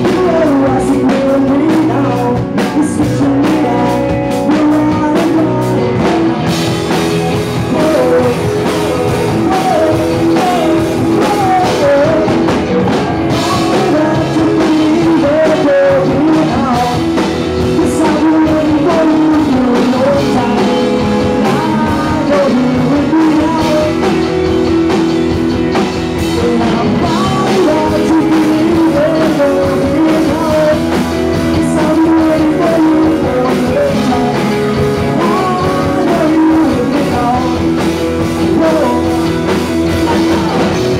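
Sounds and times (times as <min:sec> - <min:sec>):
live rock band playing: 0:00.0 - 0:40.9
man singing: 0:00.0 - 0:40.9.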